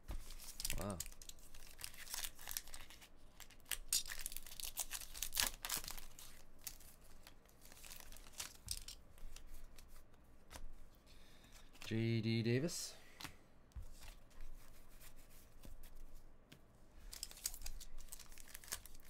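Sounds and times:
foil wrapper tearing and crinkling: 0:00.4 - 0:06.9, 0:07.6 - 0:09.0, 0:17.1 - 0:19.0.

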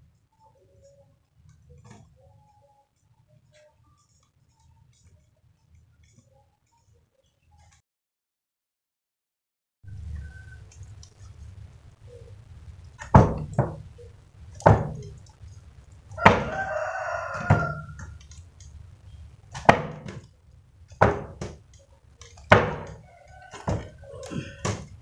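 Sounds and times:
sharp knocks: 0:13.0 - 0:13.9, 0:14.6 - 0:15.2, 0:16.2 - 0:16.6, 0:17.3 - 0:18.1, 0:19.5 - 0:20.3, 0:20.9 - 0:21.7, 0:22.5 - 0:25.0
rooster crowing: 0:16.1 - 0:18.2, 0:22.7 - 0:24.8.

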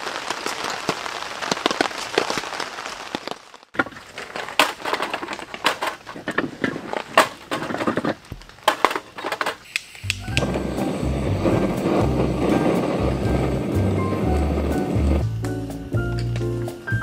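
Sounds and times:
heavy rain pattering: 0:00.0 - 0:15.9
firewood sticks knocking together: 0:03.8 - 0:09.6.

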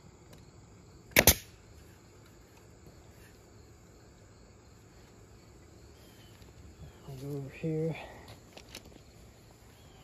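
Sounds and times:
pneumatic nailer firing: 0:01.1 - 0:01.6.

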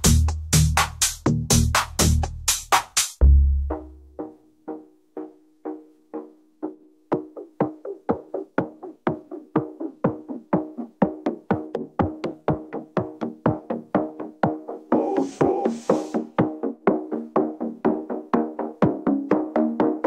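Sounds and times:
electronic music beat: 0:00.0 - 0:20.0.

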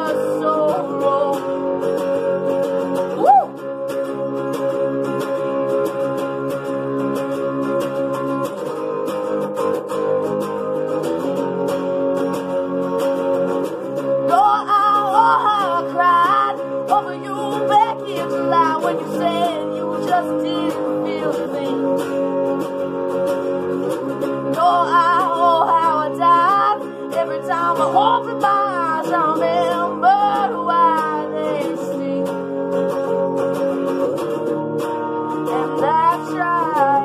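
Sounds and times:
woman singing: 0:00.0 - 0:04.0, 0:14.0 - 0:22.7, 0:24.2 - 0:33.8, 0:35.3 - 0:37.0
electric guitar strummed: 0:00.0 - 0:37.0.

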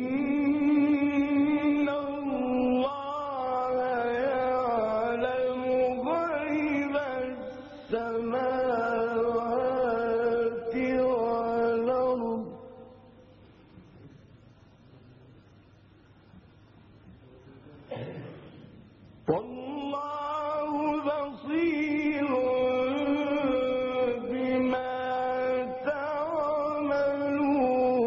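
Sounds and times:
man reciting melodically: 0:00.0 - 0:13.2, 0:19.2 - 0:28.0.

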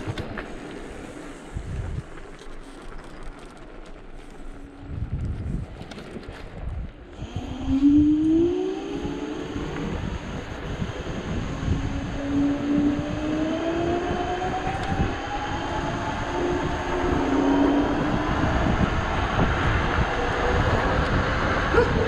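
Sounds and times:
wind on microphone: 0:00.0 - 0:03.4, 0:04.0 - 0:22.0
electric motor whining: 0:07.2 - 0:21.2.

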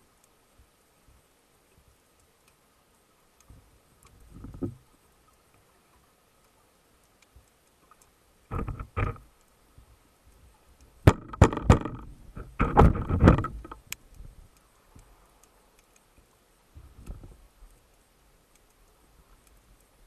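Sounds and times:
underwater knocks and clicks: 0:03.5 - 0:04.9, 0:07.8 - 0:09.3, 0:11.0 - 0:14.0, 0:16.8 - 0:17.4.

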